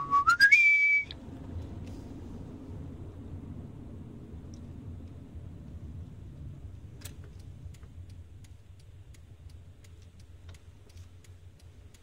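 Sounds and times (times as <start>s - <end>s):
road and engine rumble: 0.0s - 12.0s
turn signal ticking: 2.8s - 12.0s.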